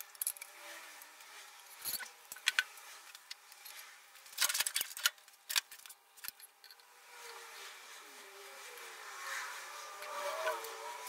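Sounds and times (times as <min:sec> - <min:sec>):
metal parts clinking and knocking: 0:00.0 - 0:00.5, 0:01.7 - 0:06.9.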